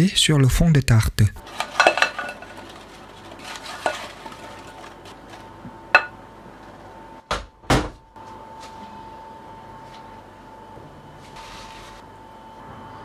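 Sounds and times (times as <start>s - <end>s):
spoon stirring apple slices: 1.4s - 6.1s
spoon knocking against glass bowl: 6.0s - 6.2s.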